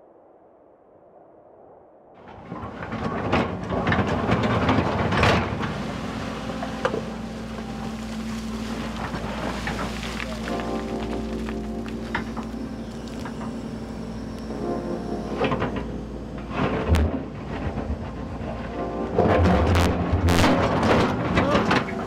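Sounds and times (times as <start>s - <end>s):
faint wind: 0.0s - 22.0s
bucket scraping rock and gravel: 2.3s - 13.8s
excavator diesel engine running: 2.3s - 22.0s.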